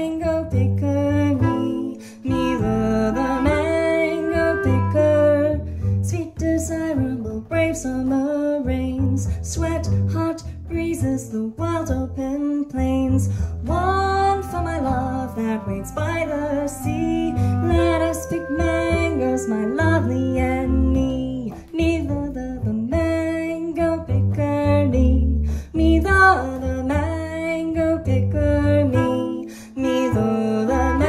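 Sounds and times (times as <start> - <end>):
plucked double bass: 0.0 - 31.0
woman singing scat: 0.0 - 31.0
clarinet: 0.1 - 7.6, 12.9 - 22.4, 28.0 - 31.0.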